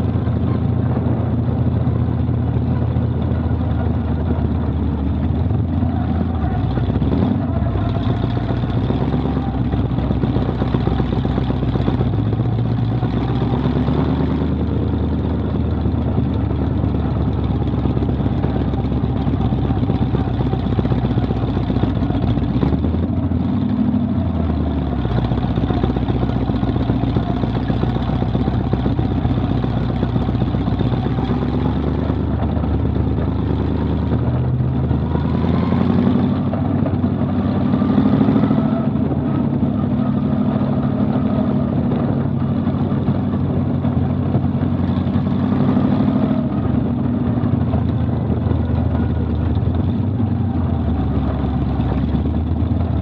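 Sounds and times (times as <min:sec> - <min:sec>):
race car engine running: 0:00.0 - 0:53.0.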